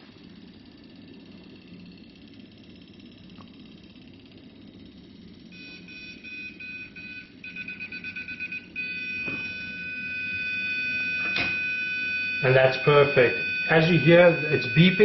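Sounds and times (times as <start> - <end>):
electronic tester beeping: 5.4 - 15.0.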